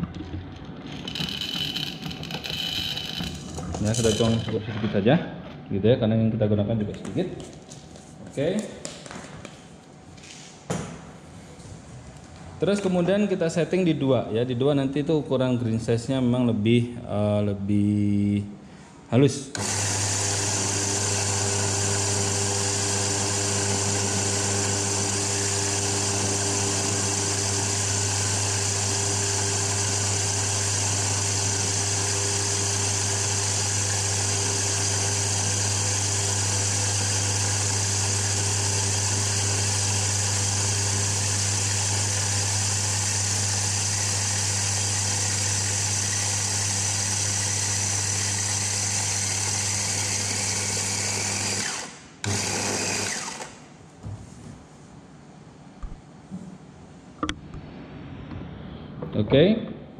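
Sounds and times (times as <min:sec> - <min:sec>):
coffee grinder running: 0:00.0 - 0:04.6, 0:19.6 - 0:53.6.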